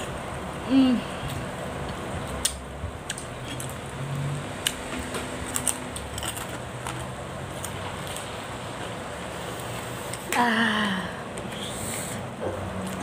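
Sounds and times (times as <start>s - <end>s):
steady background hum: 0.0s - 13.0s
person chewing: 1.2s - 8.4s.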